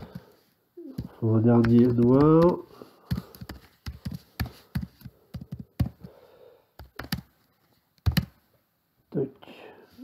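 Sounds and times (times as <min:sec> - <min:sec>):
keyboard typing clicks: 0:06.8 - 0:07.3.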